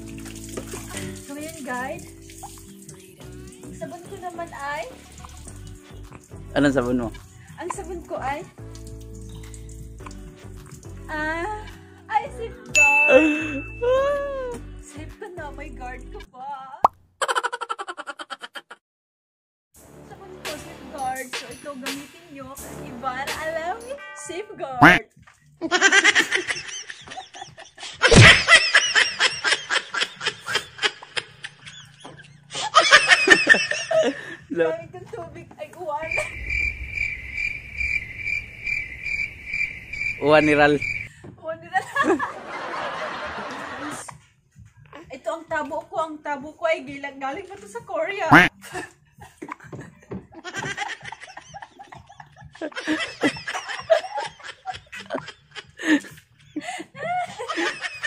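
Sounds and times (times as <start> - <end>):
woman laughing: 13.1 - 14.6, 17.2 - 18.8, 25.6 - 34.4, 41.8 - 44.1, 48.4 - 58.0.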